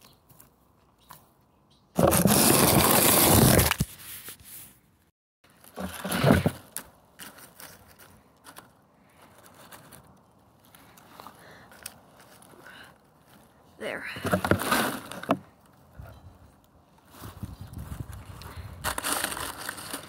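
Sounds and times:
dry grass and twigs rustling: 5.4s - 20.0s.

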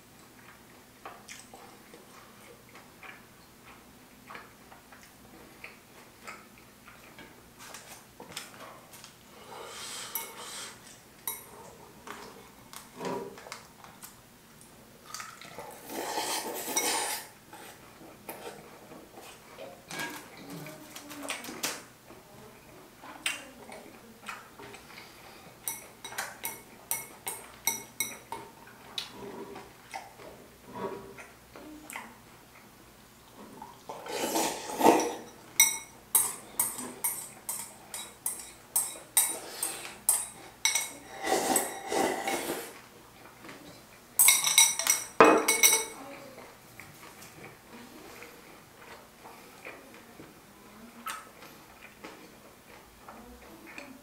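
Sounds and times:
eating sounds: 0.2s - 8.6s, 9.4s - 21.5s
slurping noodles: 15.4s - 18.6s, 34.0s - 35.2s, 41.0s - 42.8s.

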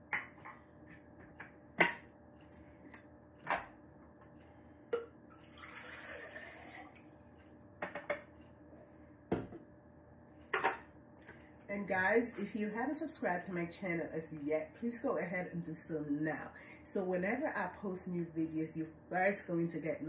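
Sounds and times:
water pouring into blender jar: 5.4s - 7.0s
kitchenware knocking on countertop: 7.8s - 8.3s.

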